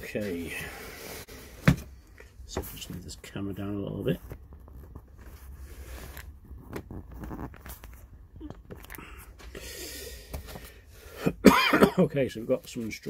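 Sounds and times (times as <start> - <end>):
cardboard and paper rustling: 4.0 - 8.1.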